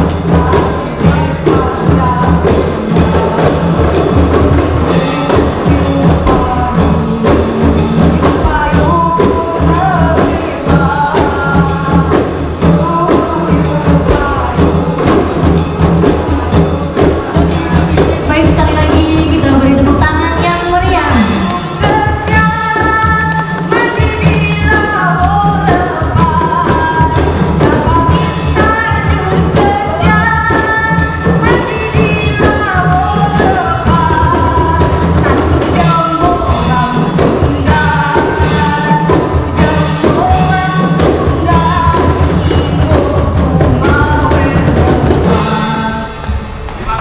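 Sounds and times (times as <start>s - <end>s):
group singing: 0.0s - 18.8s
tambourine: 0.0s - 19.2s
frame drums beating: 0.0s - 47.0s.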